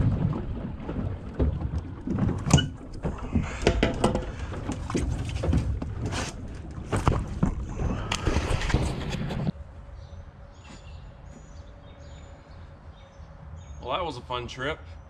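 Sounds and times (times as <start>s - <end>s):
knocks and clatter on boat deck: 0.0s - 9.5s
steady low rumble: 0.0s - 13.8s.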